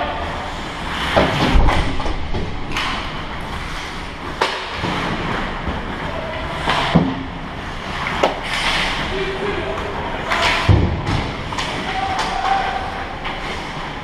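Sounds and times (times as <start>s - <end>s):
skates scraping ice: 7.6s - 9.3s.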